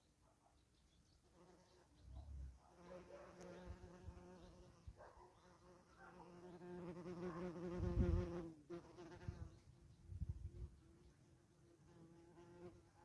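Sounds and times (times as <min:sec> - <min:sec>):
flying insect buzzing: 0:06.3 - 0:09.5.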